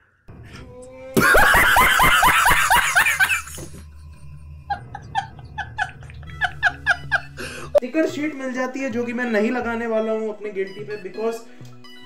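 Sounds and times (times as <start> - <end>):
man laughing hard: 1.2 - 7.8.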